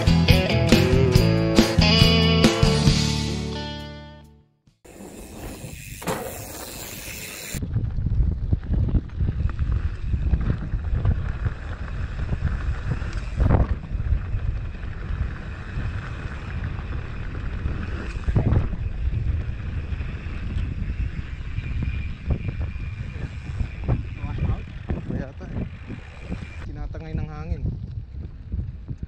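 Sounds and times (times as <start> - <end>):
bike thumping over bumps: 4.9 - 26.6
bike tyres and frame rattling: 4.9 - 29.0
wind buffeting microphone: 5.1 - 29.0.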